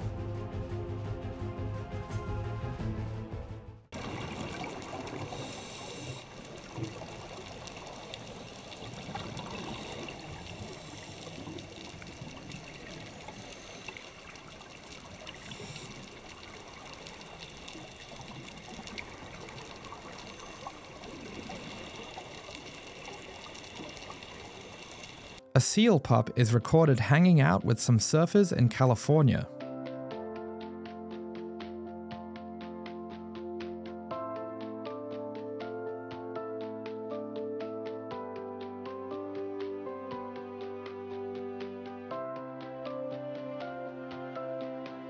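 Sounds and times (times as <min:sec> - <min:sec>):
muffled underwater water wash: 0:04.0 - 0:25.4.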